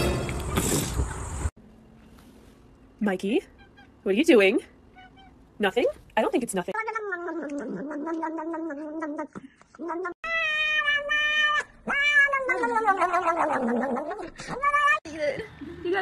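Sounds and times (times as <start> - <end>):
cat yowling: 6.8 - 15.1
cats meowing: 6.8 - 15.1.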